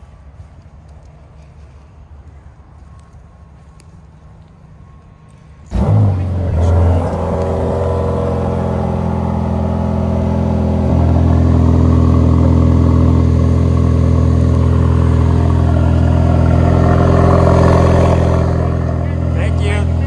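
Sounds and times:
car engine idling: 0:05.3 - 0:20.0.

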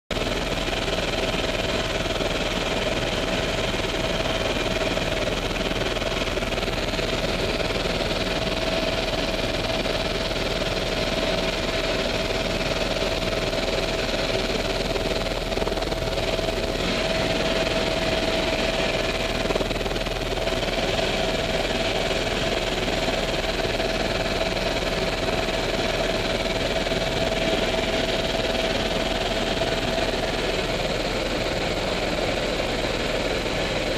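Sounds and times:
constant high whine: 0:00.1 - 0:33.9
helicopter engine and rotor drone: 0:00.1 - 0:33.9.

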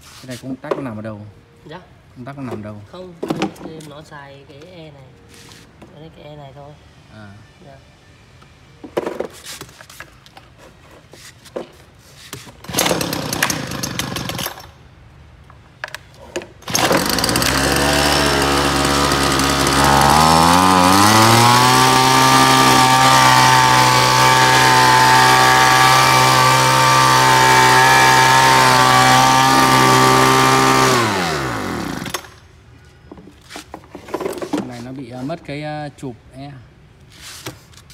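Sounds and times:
leaf blower engine running: 0:12.7 - 0:14.4, 0:16.6 - 0:32.3.

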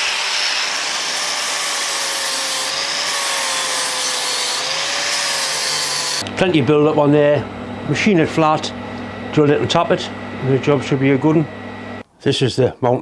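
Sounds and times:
angle grinder grinding metal: 0:00.0 - 0:12.0
faint motor whine: 0:06.2 - 0:12.0.

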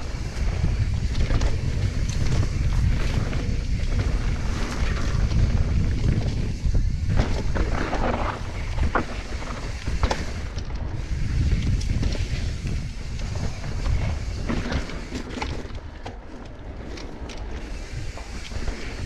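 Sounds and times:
bike rattling over bumps: 0:00.0 - 0:19.0
wind rumble on microphone: 0:00.0 - 0:19.0.

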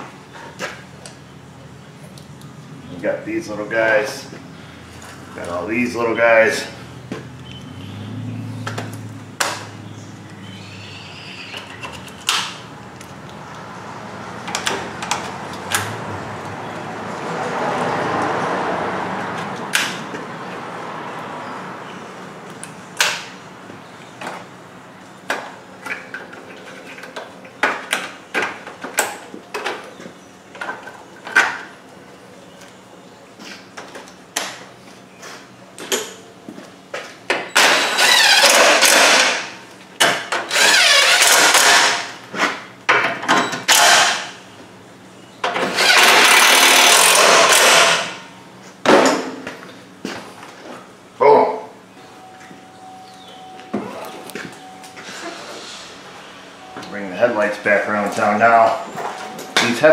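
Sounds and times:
impact driver running: 0:37.6 - 0:39.5, 0:45.7 - 0:48.2.

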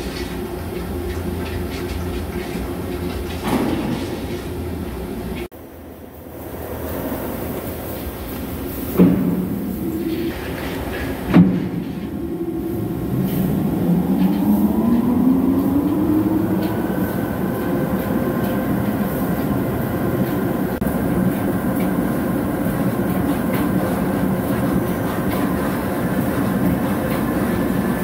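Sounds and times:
lathe whine and rumble: 0:00.0 - 0:28.0.

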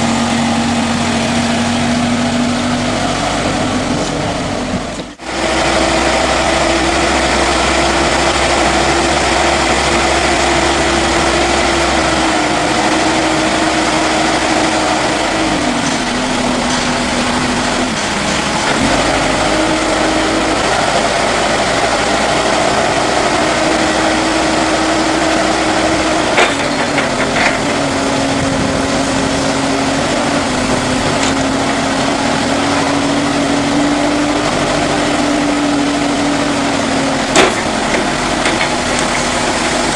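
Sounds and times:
forklift engine running: 0:00.0 - 0:39.9.

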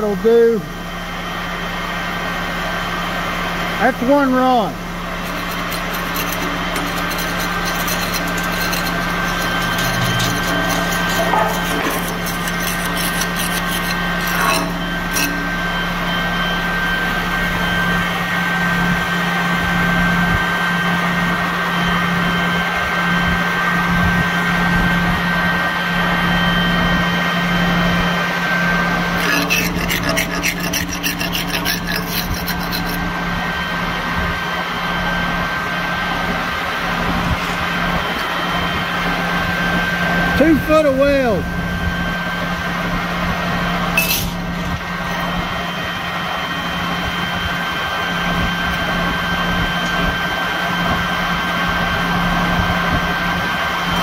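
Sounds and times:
hand tool scraping weld slag: 0:04.5 - 0:15.8, 0:28.5 - 0:33.1, 0:44.0 - 0:45.3
welding machine engine hum: 0:04.8 - 0:18.4.

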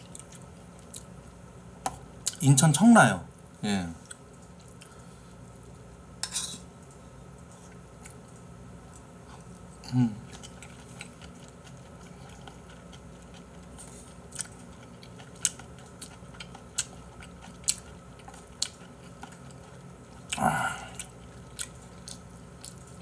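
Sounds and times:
person chewing food: 0:00.0 - 0:01.1, 0:04.0 - 0:05.5, 0:07.5 - 0:23.0.

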